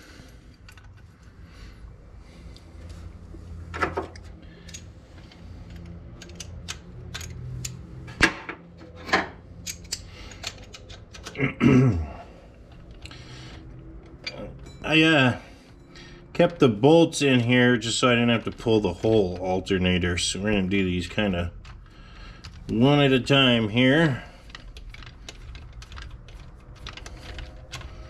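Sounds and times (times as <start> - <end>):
metal parts clicking and clinking: 0.5 - 1.1, 3.7 - 8.2, 8.8 - 11.4, 12.5 - 14.9, 23.9 - 28.0.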